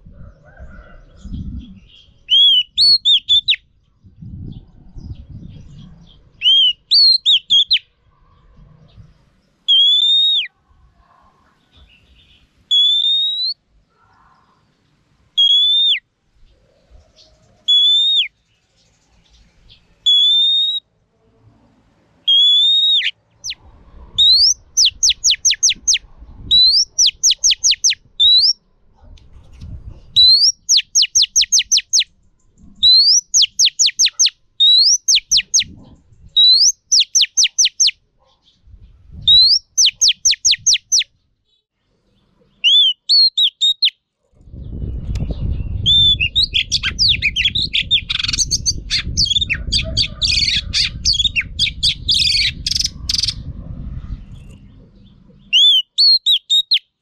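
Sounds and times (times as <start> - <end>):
magpie-robin whistling calls: 2.3 - 3.6, 6.4 - 7.8, 9.7 - 10.5, 12.7 - 13.6, 15.4 - 16.0, 17.7 - 18.3, 20.1 - 20.8, 22.3 - 23.6, 24.2 - 28.6, 30.2 - 32.1, 32.8 - 35.8, 36.4 - 38.0, 39.3 - 41.1, 42.6 - 44.0, 45.9 - 53.4, 55.5 - 56.9.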